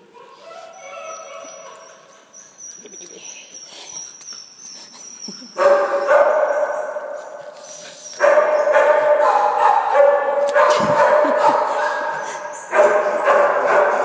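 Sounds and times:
dog whining: 0.1 - 9.5.

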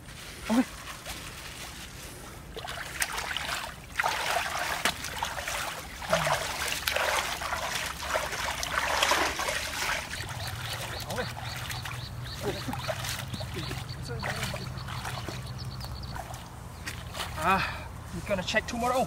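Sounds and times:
hands splashing in muddy water: 2.5 - 17.5.

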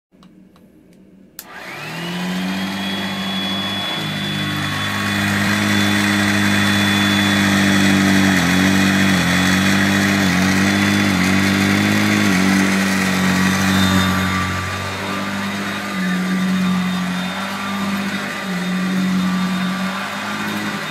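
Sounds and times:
vacuum cleaner switch click: 1.4 - 1.8
vacuum cleaner motor whine: 1.4 - 20.9.

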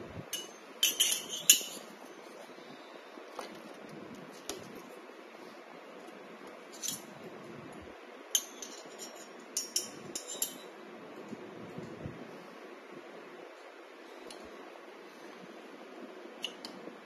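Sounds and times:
metal parts clinking: 0.4 - 1.8.

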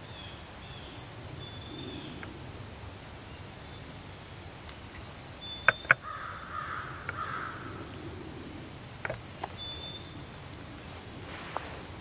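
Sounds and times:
harsh raspy bird call: 5.7 - 10.3.

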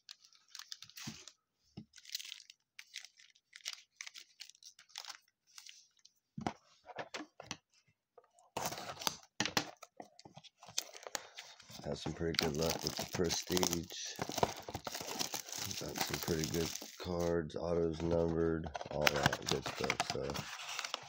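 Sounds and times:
foil wrappers crinkling: 1.9 - 5.8, 10.7 - 17.3, 18.1 - 21.0.

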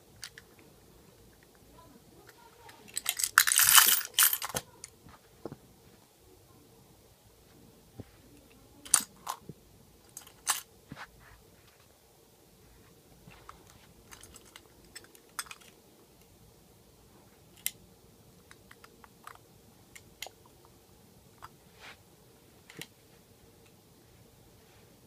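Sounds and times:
toy truck clicks and knocks: 14.1 - 15.8.

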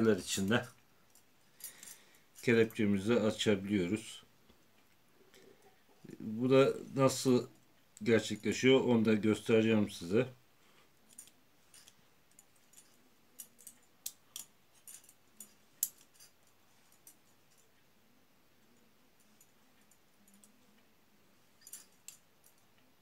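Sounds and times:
handcuff steel clinking: 0.5 - 2.8, 11.0 - 17.8, 18.6 - 20.8, 21.5 - 22.9.

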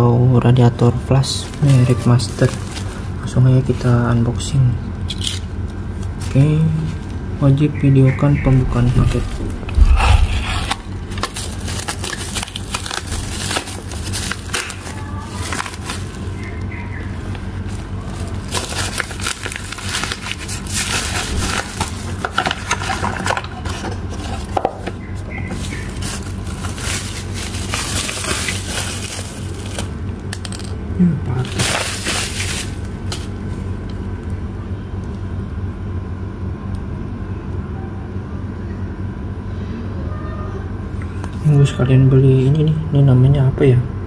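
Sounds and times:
low steady hum: 0.0 - 44.0
plastic bag tearing and crinkling: 1.4 - 3.1, 8.7 - 16.7, 17.6 - 23.5, 25.5 - 30.0, 31.4 - 33.3.

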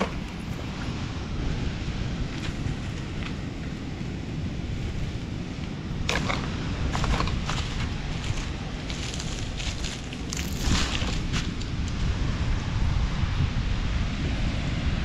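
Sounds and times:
wind rumbling on microphone: 0.0 - 15.0.

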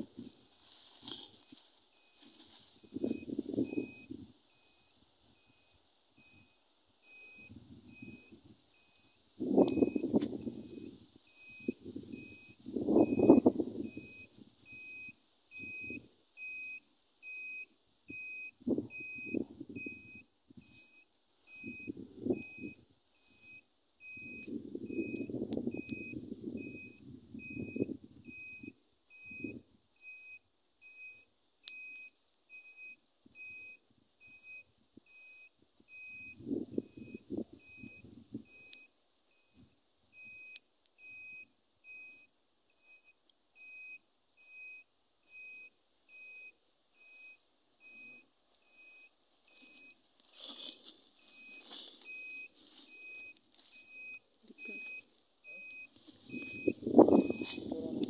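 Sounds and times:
short high beeps: 2.8 - 57.9.

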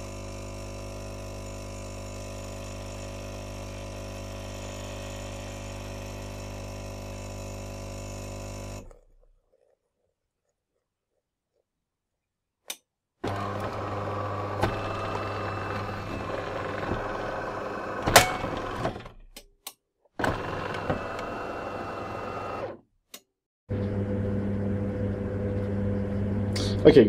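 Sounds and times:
espresso machine humming: 0.0 - 8.9, 13.2 - 18.8, 20.2 - 22.7, 23.7 - 26.7.

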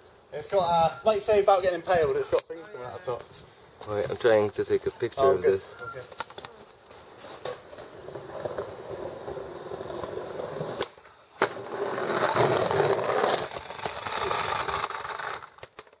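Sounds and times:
skateboard wheels rolling on stone: 6.1 - 16.0.

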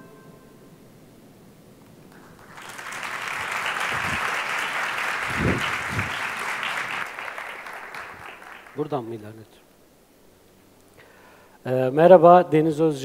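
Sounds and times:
audience applause: 2.1 - 9.1.

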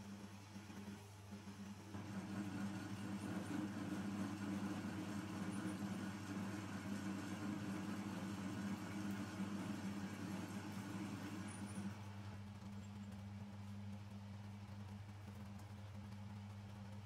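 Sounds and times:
metal lathe motor humming: 1.9 - 12.2.

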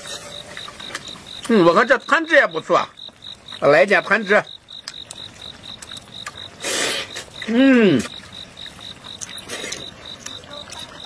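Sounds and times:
cricket chirping: 0.0 - 11.0
person slurping: 5.9 - 10.0
man humming mm of enjoyment: 7.5 - 8.1.

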